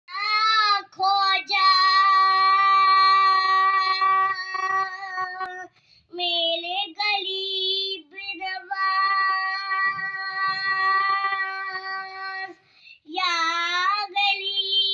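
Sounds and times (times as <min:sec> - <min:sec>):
boy singing: 0:00.1 - 0:14.9.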